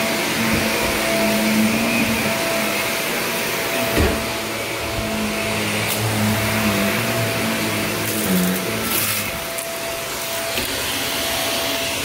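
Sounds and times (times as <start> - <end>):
vacuum cleaner on carpet: 0.0 - 12.0.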